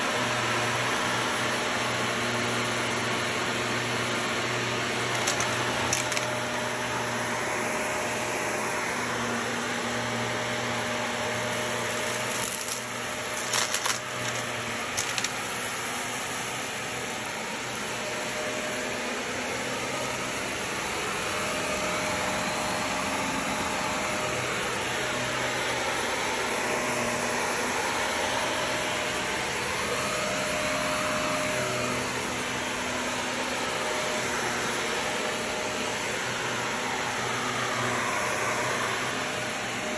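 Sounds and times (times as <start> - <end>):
vacuum cleaner running on carpet: 0.0 - 39.9
grit crackling in vacuum: 11.4 - 16.0.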